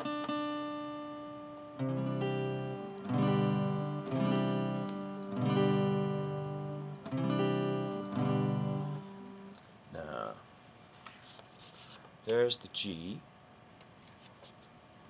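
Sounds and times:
acoustic guitar chords strummed: 0.0s - 9.6s.

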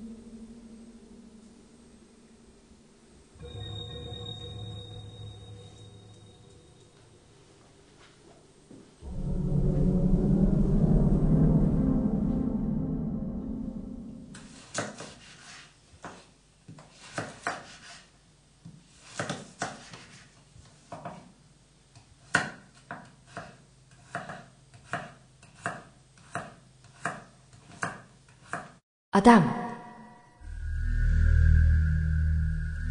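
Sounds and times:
low ringing tone: 0.0s - 7.7s, 9.0s - 14.6s, 29.6s - 32.9s
knife chopping on cutting board: 14.7s - 16.2s, 16.8s - 18.0s, 19.0s - 20.2s, 22.2s - 28.8s.

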